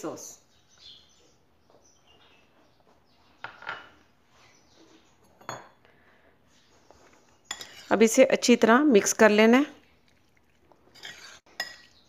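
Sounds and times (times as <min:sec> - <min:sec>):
glass dishes clattering: 0:03.4 - 0:04.0, 0:05.2 - 0:05.8, 0:07.5 - 0:07.9, 0:10.9 - 0:12.0
glass clinking: 0:05.3 - 0:05.8, 0:07.5 - 0:07.8, 0:10.9 - 0:12.0.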